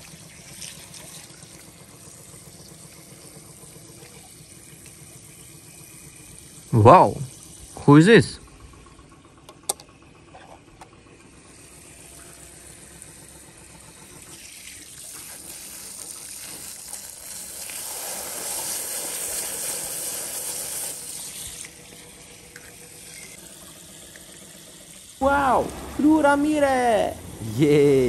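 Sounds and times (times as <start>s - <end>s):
hose water spraying: 14.1s - 23.6s, 24.9s - 28.0s.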